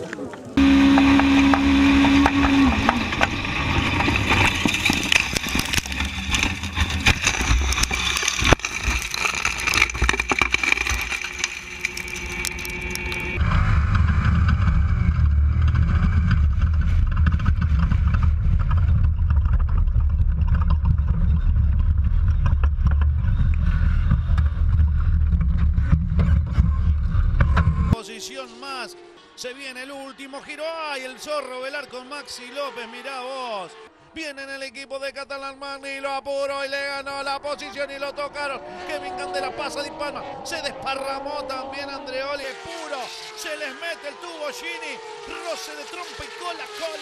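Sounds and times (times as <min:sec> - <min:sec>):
race car engine: 0:00.4 - 0:34.9, 0:36.8 - 0:47.0
low engine drone in cockpit: 0:00.6 - 0:05.2, 0:13.1 - 0:28.0
knocks and rattles: 0:01.0 - 0:13.4.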